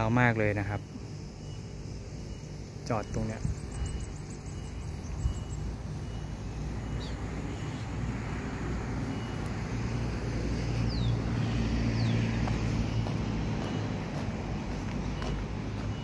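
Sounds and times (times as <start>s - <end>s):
faint high chirps: 0.0s - 8.1s
locomotive engines idling: 0.0s - 16.0s.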